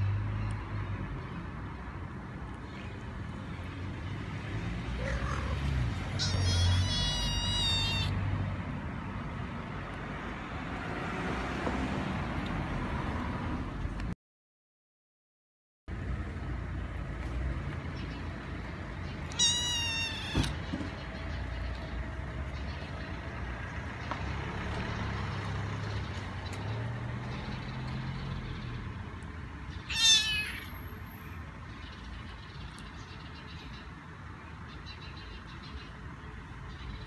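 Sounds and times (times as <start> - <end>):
kitten meowing: 6.2 - 8.2, 19.2 - 20.6, 29.8 - 30.8.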